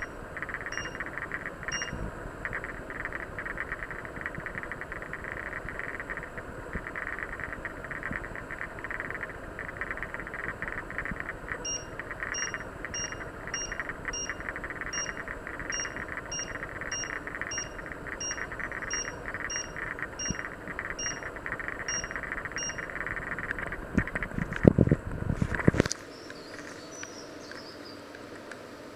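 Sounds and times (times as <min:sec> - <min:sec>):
short high beeps: 0:00.0 - 0:01.0, 0:01.7 - 0:02.0, 0:11.7 - 0:21.3, 0:21.9 - 0:22.9.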